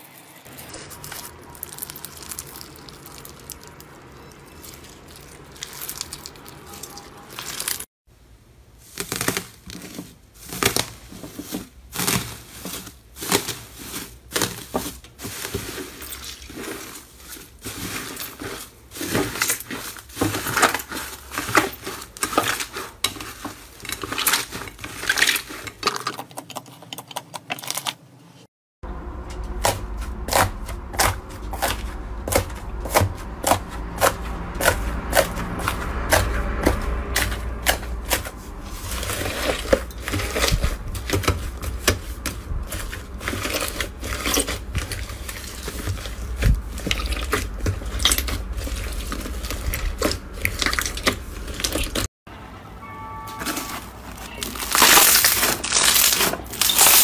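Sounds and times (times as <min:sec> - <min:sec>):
crunchy foam bead slime: 0:00.5 - 0:07.9, 0:08.7 - 0:25.9, 0:29.6 - 0:52.1, 0:54.2 - 0:57.0
hands squeezing sticky slime: 0:00.6 - 0:07.8.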